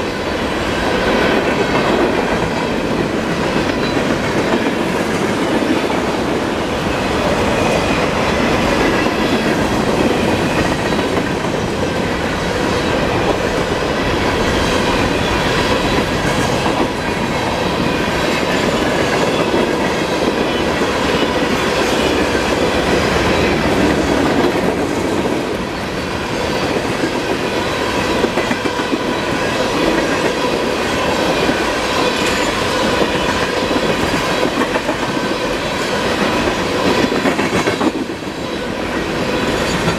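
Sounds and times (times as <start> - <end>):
train wheels clicking over rails: 0.0 - 39.9.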